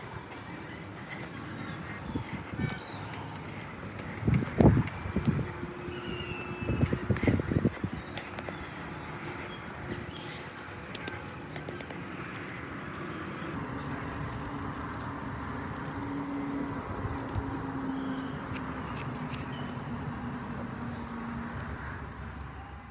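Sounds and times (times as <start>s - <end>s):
faint birds: 0.0s - 22.9s
hand scooping dry soil: 10.1s - 16.4s.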